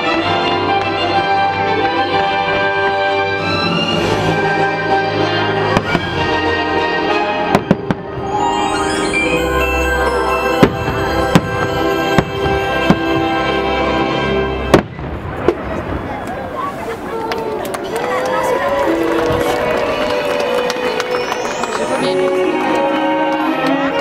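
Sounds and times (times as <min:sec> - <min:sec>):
orchestral music: 0:00.0 - 0:15.6, 0:18.6 - 0:24.0
fireworks bangs: 0:07.5 - 0:08.7, 0:10.0 - 0:13.6, 0:14.5 - 0:17.5.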